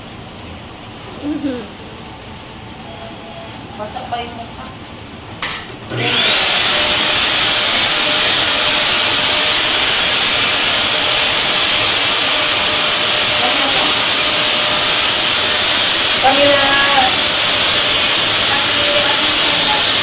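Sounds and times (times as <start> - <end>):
hair dryer blowing: 5.4 - 20.0.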